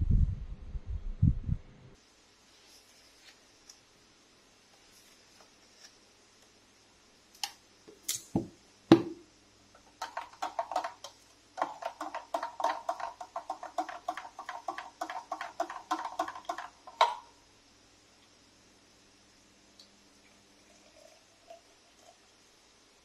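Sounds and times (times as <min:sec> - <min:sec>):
knocks of spoon and can: 0:10.0 - 0:17.3.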